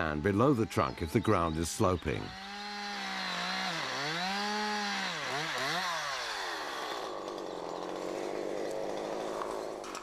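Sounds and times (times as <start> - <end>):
chainsaw cutting wood: 2.3 - 10.0.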